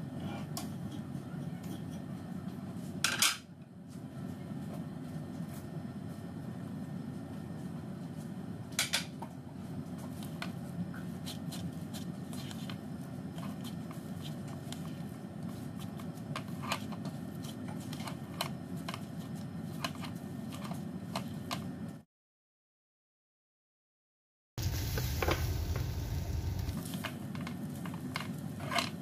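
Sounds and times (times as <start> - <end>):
steady low hum: 24.6 - 27.0.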